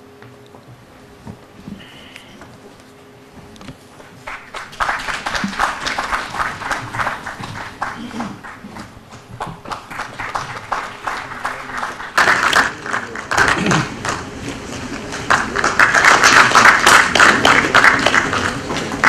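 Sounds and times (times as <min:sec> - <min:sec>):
audience applauding: 0:04.0 - 0:19.0.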